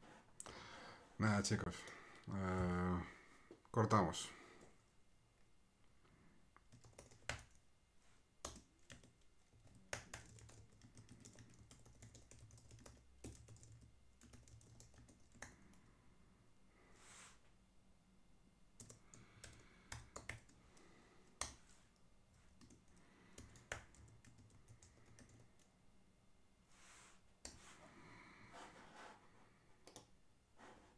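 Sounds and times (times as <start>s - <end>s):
computer keyboard keystrokes: 6.6s - 7.6s, 8.4s - 15.8s, 18.8s - 20.6s, 22.6s - 25.7s.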